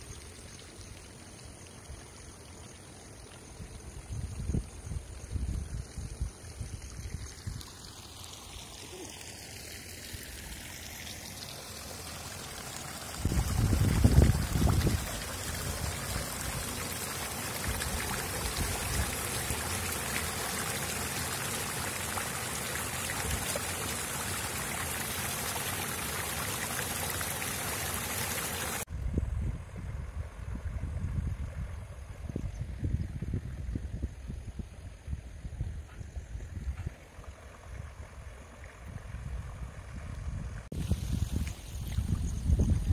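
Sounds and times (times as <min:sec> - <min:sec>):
water rushing in a channel: 0:06.2 - 0:28.9.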